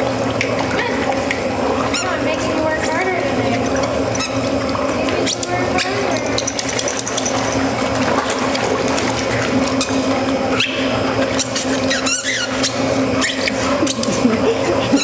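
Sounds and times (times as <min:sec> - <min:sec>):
treadmill humming: 0:00.0 - 0:15.0
water splashing: 0:00.0 - 0:15.0
high squeaks and clicks: 0:03.6 - 0:04.6, 0:09.7 - 0:14.2
wavering squeal: 0:10.6 - 0:13.7.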